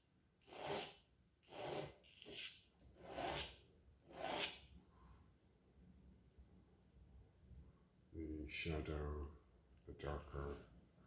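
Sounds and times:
pencil rasping on paper: 0:00.4 - 0:04.7.

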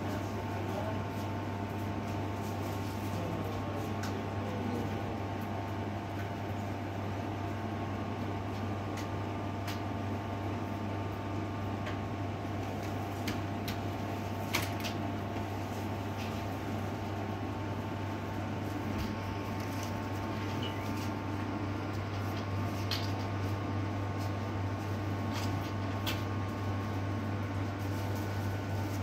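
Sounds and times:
machine hum: 0:00.0 - 0:29.0.

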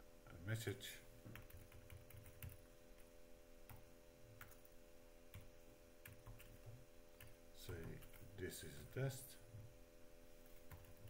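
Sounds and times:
faint electrical hum: 0:00.0 - 0:11.0
computer keyboard keystrokes: 0:01.3 - 0:02.6.

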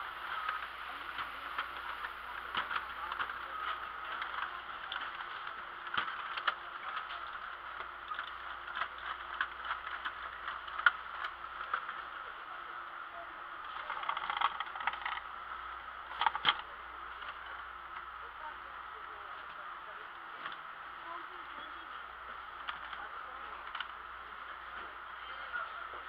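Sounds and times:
background hiss and hum: 0:00.0 - 0:26.0
plastic toy cars tapping: 0:00.2 - 0:12.2, 0:13.6 - 0:15.3, 0:16.1 - 0:18.1, 0:22.6 - 0:24.0.

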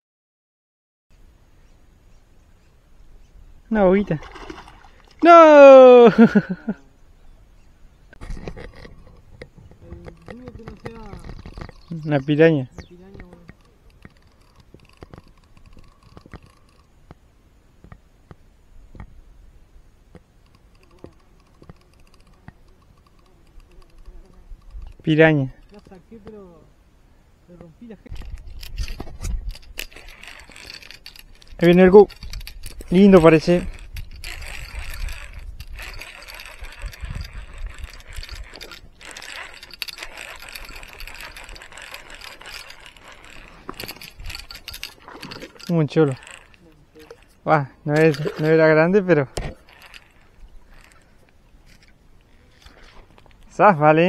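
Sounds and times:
fishing reel gears whirring: 0:08.2 - 0:16.9, 0:20.4 - 0:26.4, 0:28.2 - 0:52.9
hook tearing out: 0:28.1 - 0:53.0.

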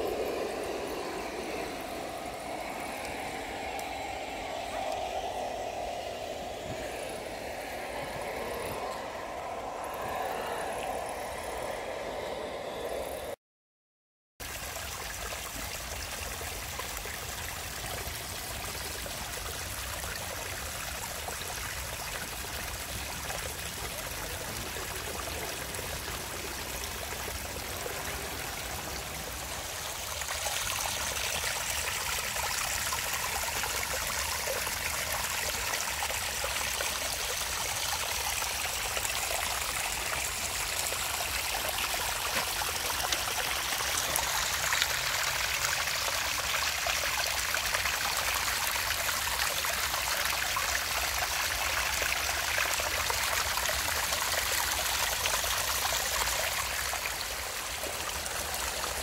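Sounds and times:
creek splashing over rocks: 0:21.3 - 0:59.0.

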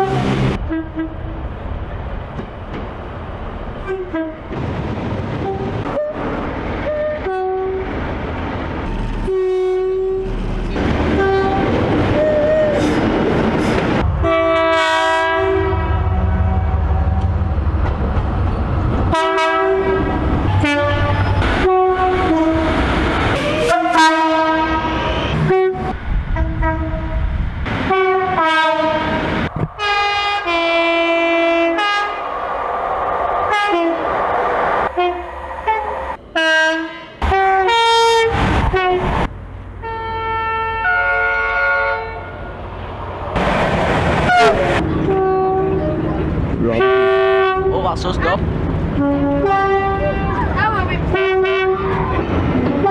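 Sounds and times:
two-tone train horn blasts: 0:00.0 - 0:01.4, 0:03.8 - 0:04.5, 0:05.4 - 0:07.8, 0:09.2 - 0:10.4, 0:11.2 - 0:12.9, 0:14.1 - 0:17.0, 0:19.1 - 0:22.7, 0:23.4 - 0:27.2, 0:27.9 - 0:29.2, 0:29.8 - 0:32.2, 0:34.9 - 0:39.1, 0:39.8 - 0:42.5, 0:44.3 - 0:46.0, 0:46.7 - 0:47.7, 0:49.0 - 0:50.4, 0:51.1 - 0:52.9.

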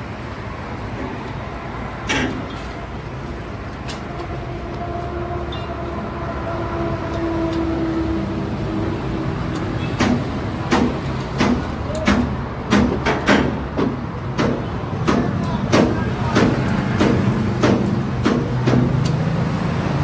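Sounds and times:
vehicle engine rumbling: 0:00.0 - 0:20.0
sharp clicks and knocks: 0:09.5 - 0:19.3.

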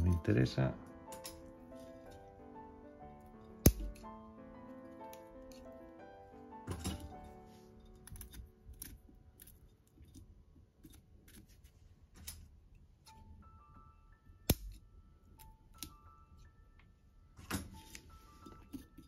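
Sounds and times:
soft background music: 0:00.0 - 0:19.0
scissors snipping roots: 0:03.6 - 0:04.1.

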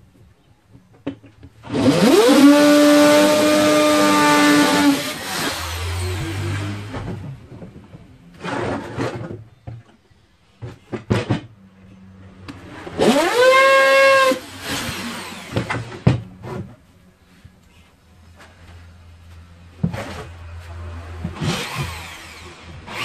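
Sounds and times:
electric drill whining: 0:13.0 - 0:15.8, 0:21.4 - 0:23.0.

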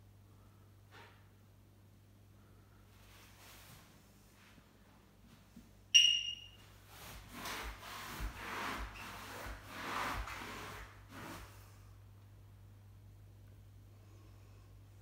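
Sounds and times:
short high-pitched beep: 0:06.0 - 0:06.6.

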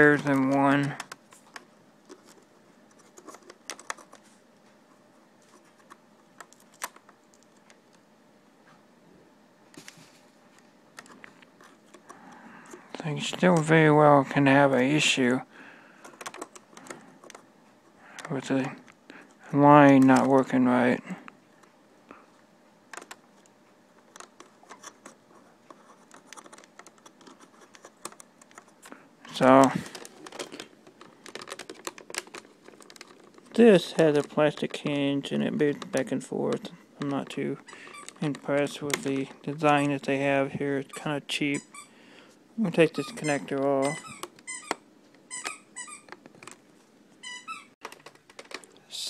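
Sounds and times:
fingers clicking on plastic housing: 0:16.0 - 0:17.4, 0:31.2 - 0:33.5.

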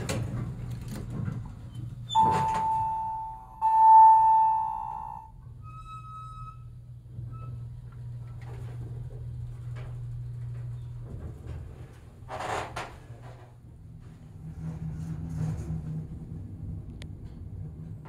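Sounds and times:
steady low hum: 0:00.0 - 0:18.0
elevator chime: 0:02.1 - 0:06.8.

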